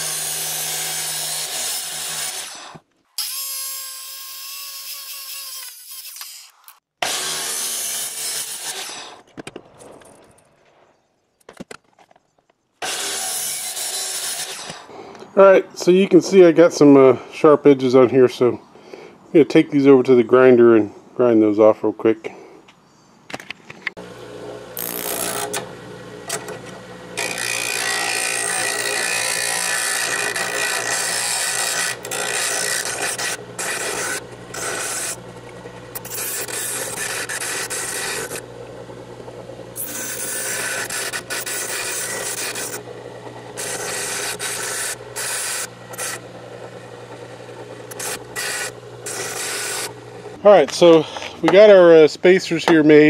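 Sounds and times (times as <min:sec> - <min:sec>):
bench grinder humming: 0:00.0 - 0:06.4, 0:12.8 - 0:14.9, 0:24.0 - 0:51.8
metal grinding rasp: 0:24.8 - 0:25.7, 0:26.3 - 0:38.5, 0:39.8 - 0:50.4.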